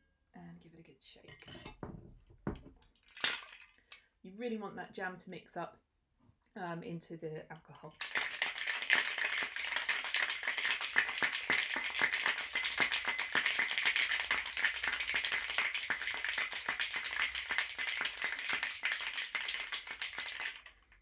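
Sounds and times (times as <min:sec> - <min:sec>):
ice cubes rattling in shaker: 0:08.0 - 0:21.0.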